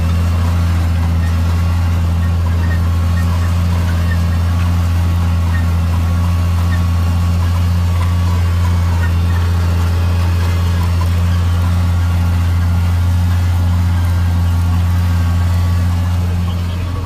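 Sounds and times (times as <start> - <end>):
tractor diesel engine drone: 0.0 - 17.0.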